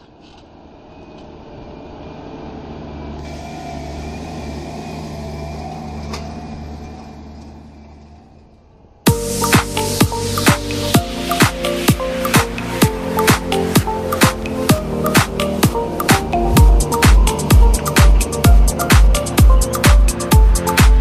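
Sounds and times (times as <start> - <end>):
tractor diesel engine running: 1.2 - 21.0
electronic dance music: 9.1 - 21.0.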